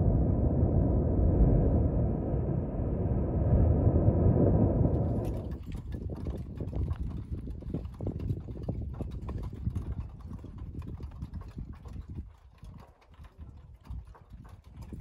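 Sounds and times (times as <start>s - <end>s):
low rumble: 0.0s - 7.2s.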